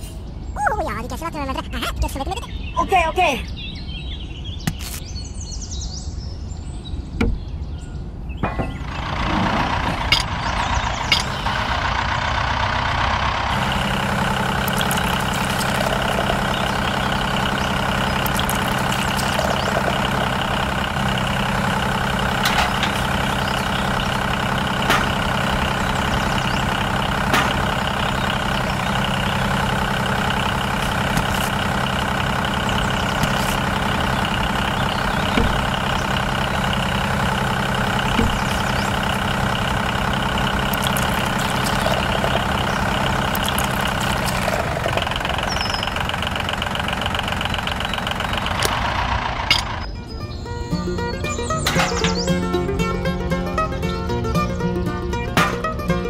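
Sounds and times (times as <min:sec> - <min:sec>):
miniature engine running: 0:11.1 - 0:49.8.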